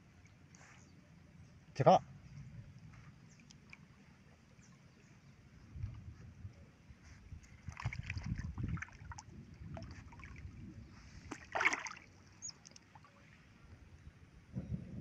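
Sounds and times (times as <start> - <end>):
water splashing and sloshing: 2.9 - 6.4, 7.1 - 13.8.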